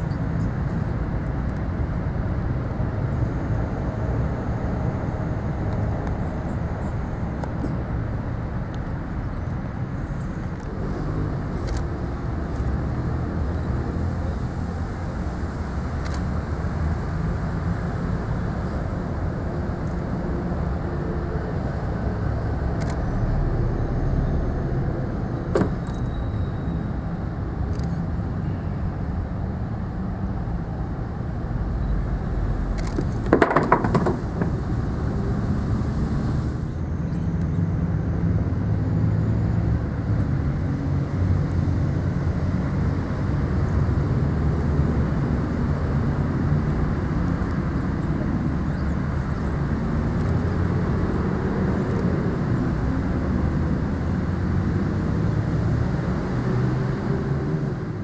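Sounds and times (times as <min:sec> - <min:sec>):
clattering: 0:33.3 - 0:34.6
sharp knock: 0:33.3 - 0:34.6.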